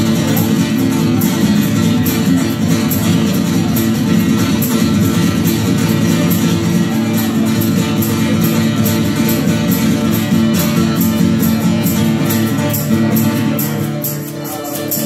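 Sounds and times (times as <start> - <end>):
acoustic guitars strumming: 0.0 - 15.0.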